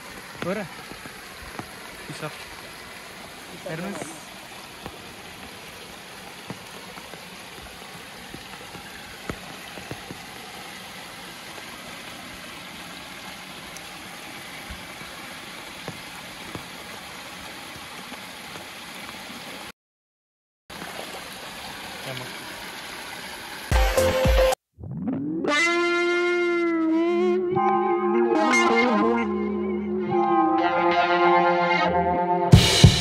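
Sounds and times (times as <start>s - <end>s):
flowing stream water: 0.0s - 19.7s, 20.7s - 24.6s.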